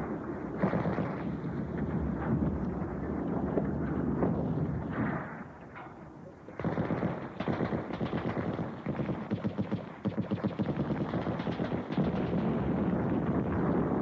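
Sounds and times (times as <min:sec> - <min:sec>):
machine-gun fire: 0:00.6 - 0:01.5, 0:06.6 - 0:14.0.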